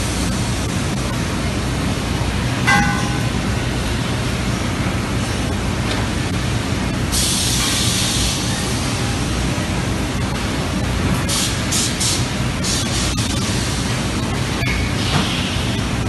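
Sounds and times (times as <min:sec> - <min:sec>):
loud steady background noise: 0:00.0 - 0:16.0
compressed air hissing: 0:07.1 - 0:08.6, 0:11.3 - 0:13.9.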